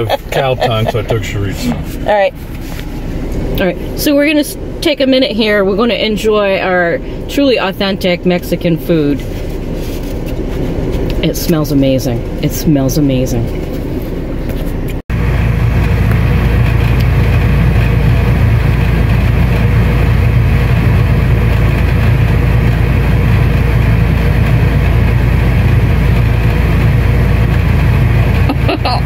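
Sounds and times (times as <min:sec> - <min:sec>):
vehicle engine and road noise: 0:00.0 - 0:29.0.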